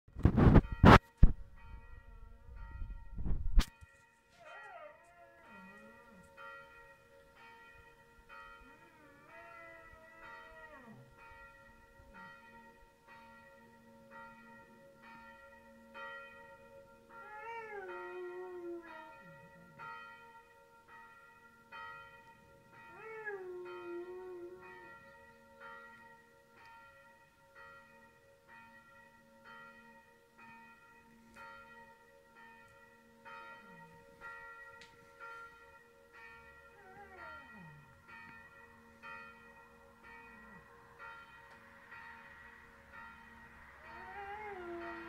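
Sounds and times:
church bells ringing: 0:00.5 - 0:45.0
dog howling: 0:04.4 - 0:05.9, 0:08.7 - 0:11.1, 0:17.2 - 0:19.3, 0:22.9 - 0:24.9, 0:36.8 - 0:37.8, 0:43.8 - 0:45.0.

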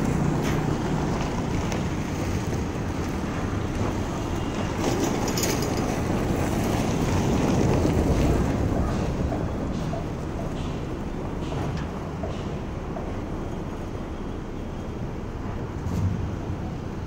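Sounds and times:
car engine low rumble: 0:00.0 - 0:04.5.

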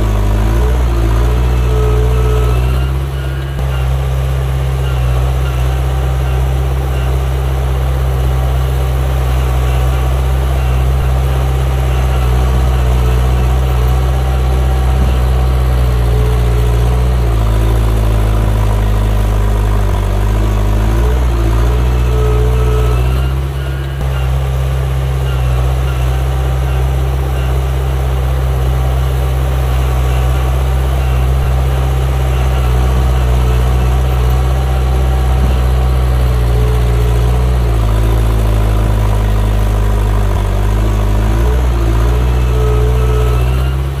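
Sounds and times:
heavy diesel engine humming: 0:00.0 - 0:44.0.

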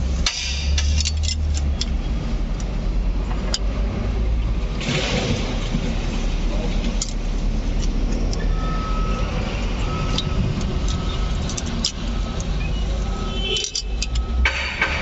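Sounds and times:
metal tool clicks: 0:00.2 - 0:02.7, 0:10.1 - 0:12.6, 0:13.4 - 0:14.8.

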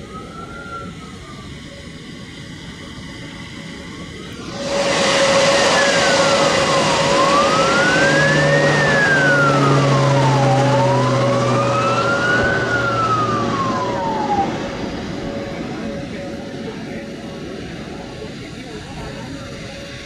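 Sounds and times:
turboprop plane passing low: 0:00.0 - 0:20.0
siren wailing: 0:04.4 - 0:16.6.

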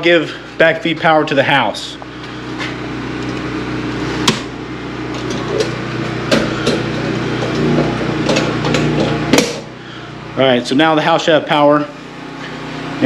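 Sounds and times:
generator humming: 0:00.0 - 0:13.0.

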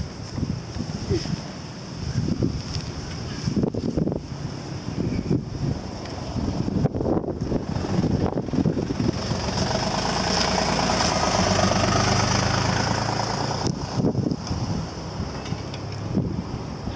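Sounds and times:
wind noise on microphone: 0:00.0 - 0:16.9
vehicle engine running: 0:06.2 - 0:16.9.

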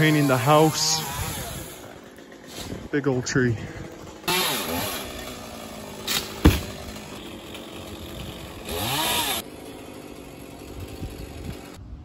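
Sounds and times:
chainsaw revving: 0:00.0 - 0:11.8.

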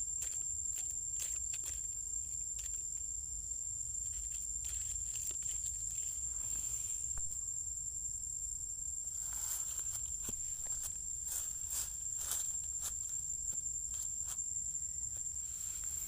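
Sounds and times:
high-pitched insect drone: 0:00.0 - 0:16.0
soft rustles: 0:09.2 - 0:16.0.

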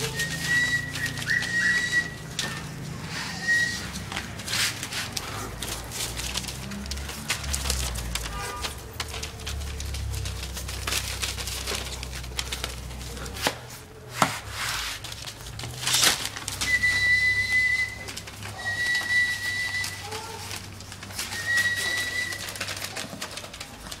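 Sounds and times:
high whistling tones: 0:00.0 - 0:04.7, 0:16.5 - 0:20.5, 0:21.2 - 0:23.0
puppies scuffling on newspaper: 0:00.0 - 0:24.0
small clicks and rattles: 0:04.0 - 0:13.8, 0:15.0 - 0:24.0.

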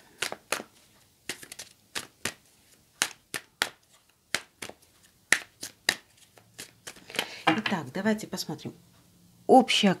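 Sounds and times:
cards being shuffled by hand: 0:00.0 - 0:07.3.

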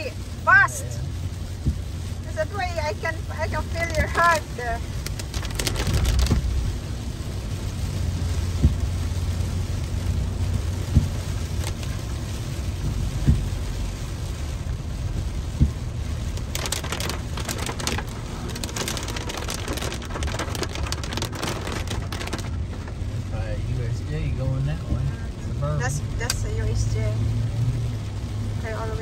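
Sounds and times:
car driving on wet road: 0:00.0 - 0:29.0
heavy rain on car windshield: 0:00.0 - 0:29.0
windshield wipers knocking: 0:01.6 - 0:02.0, 0:03.1 - 0:06.7, 0:08.4 - 0:09.2, 0:10.4 - 0:13.8, 0:15.0 - 0:23.2.

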